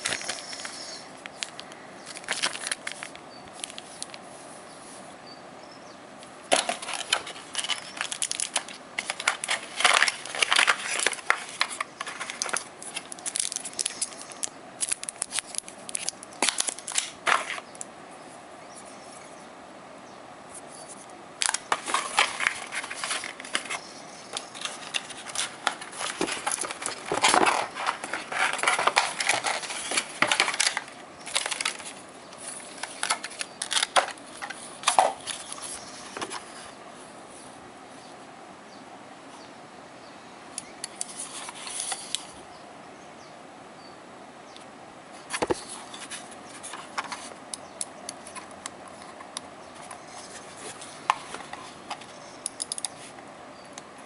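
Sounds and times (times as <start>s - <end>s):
plastic packaging crinkling: 0.0s - 4.2s, 6.5s - 17.9s, 21.4s - 36.5s.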